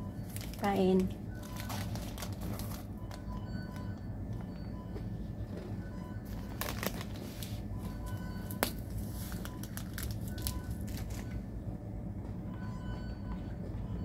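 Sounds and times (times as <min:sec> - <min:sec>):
low steady hum: 0:00.0 - 0:14.0
paper wrapper crinkling: 0:00.2 - 0:00.7, 0:01.4 - 0:03.3, 0:06.3 - 0:11.3.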